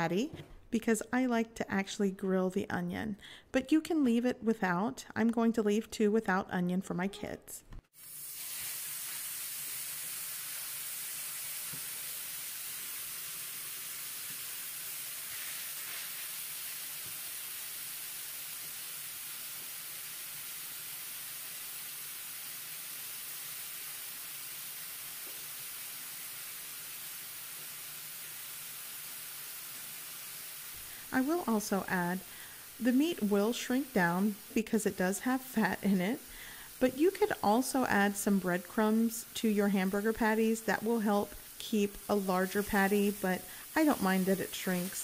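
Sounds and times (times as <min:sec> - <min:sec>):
meat sizzling on a griddle: 0:07.9 - 0:34.6, 0:38.8 - 0:45.0.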